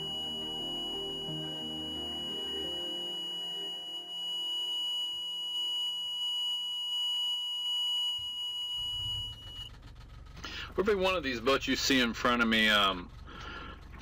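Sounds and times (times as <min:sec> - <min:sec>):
high-pitched electronic tone: 0:00.0 - 0:09.7.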